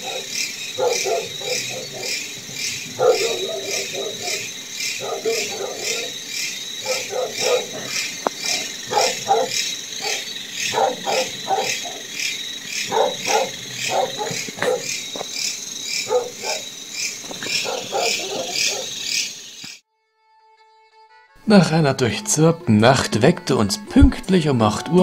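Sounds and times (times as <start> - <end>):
crickets chirping: 0.0 - 19.8
dogs barking: 0.0 - 19.8.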